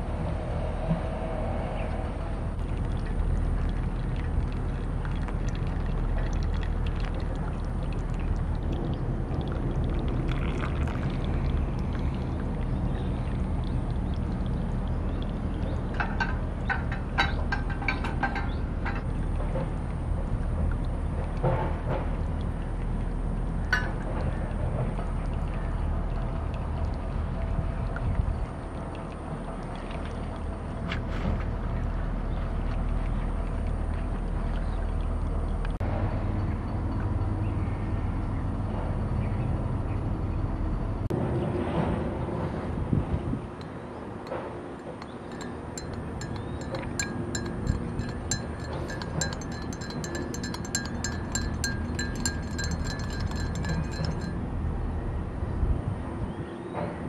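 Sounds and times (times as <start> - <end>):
low outdoor rumble with hiss: 0.0 - 57.0
metal spoon clinking glass mug: 45.0 - 54.4.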